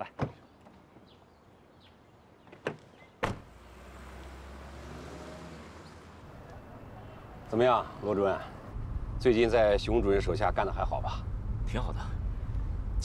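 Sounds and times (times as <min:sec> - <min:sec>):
car door shutting: 0:02.6 - 0:03.5
car pulling away: 0:03.4 - 0:13.0.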